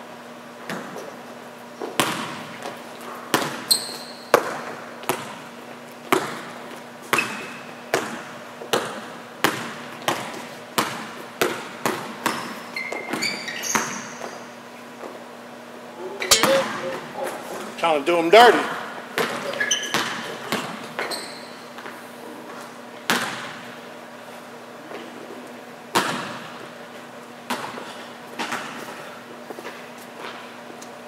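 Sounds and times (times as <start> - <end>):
basketball dribbling on gym floor: 3.3 - 5.5, 6.1 - 14.4
sneakers squeaking on court: 3.3 - 5.5, 6.1 - 9.0, 9.6 - 14.8, 16.2 - 17.6, 19.2 - 22.0.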